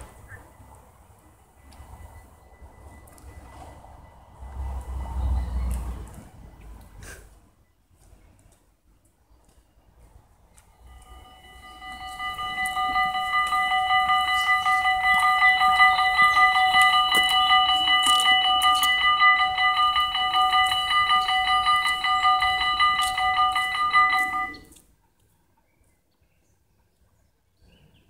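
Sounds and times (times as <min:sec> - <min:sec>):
level crossing bells ringing: 0:00.0 - 0:05.8, 0:10.7 - 0:24.8.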